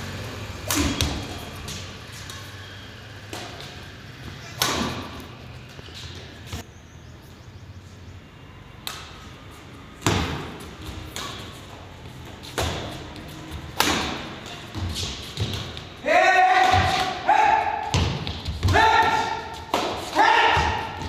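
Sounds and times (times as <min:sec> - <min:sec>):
rackets hitting shuttlecock: 0:00.5 - 0:06.6, 0:08.8 - 0:09.4, 0:10.0 - 0:21.0.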